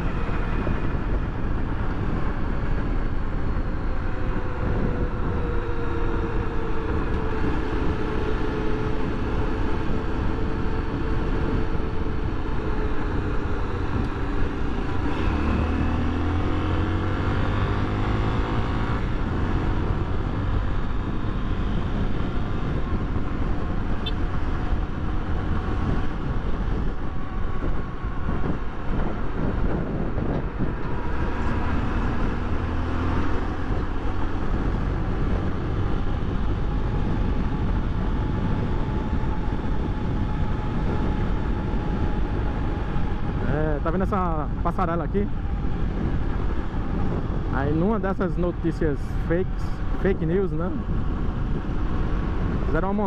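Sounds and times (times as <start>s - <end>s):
motorcycle engine accelerating: 0.0s - 48.7s
wind rumble on microphone: 0.0s - 53.0s.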